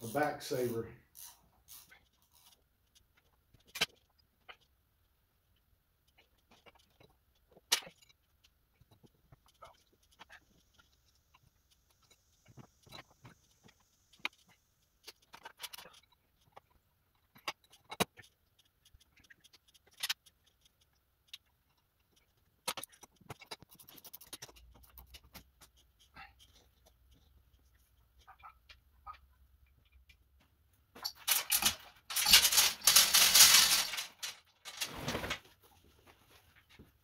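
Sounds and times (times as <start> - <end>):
metal parts clicking and scraping: 0.0 - 4.7, 6.1 - 25.8, 31.0 - 35.4.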